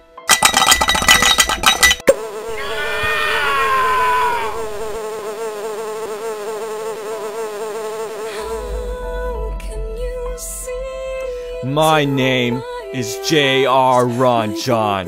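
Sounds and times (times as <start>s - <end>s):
fly buzzing: 2.0s - 9.2s.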